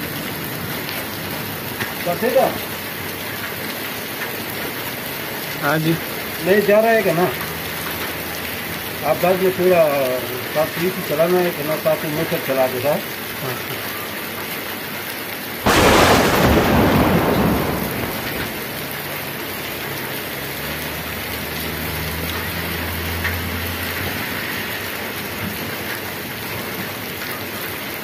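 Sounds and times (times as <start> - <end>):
heavy rain on pavement: 0.0 - 28.0
loud thunderclap rumbling: 15.7 - 19.1.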